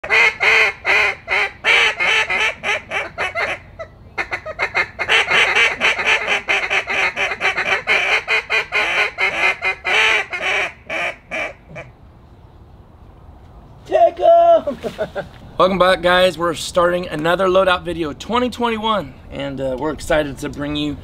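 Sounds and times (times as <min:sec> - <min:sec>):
duck call quacks and chatter: 0:00.0 - 0:11.9.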